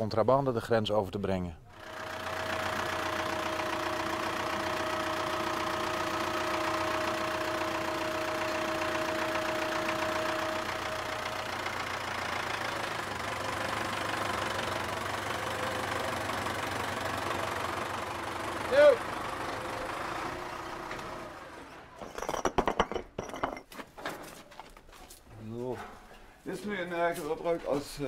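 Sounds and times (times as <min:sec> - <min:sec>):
vehicle engine running: 0:01.7 - 0:22.4.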